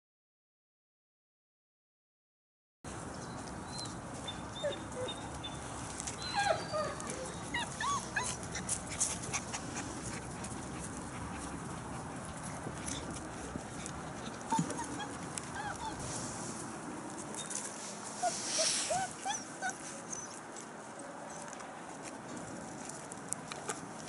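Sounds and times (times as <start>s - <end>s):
puppies whimpering and yipping: 3.3s - 16.2s, 17.2s - 22.0s
background hiss: 15.6s - 20.2s.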